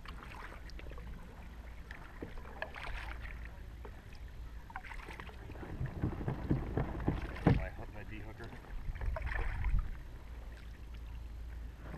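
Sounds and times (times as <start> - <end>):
water splashing at kayak hull: 0.0 - 11.9
wind rumble on microphone: 5.4 - 10.4.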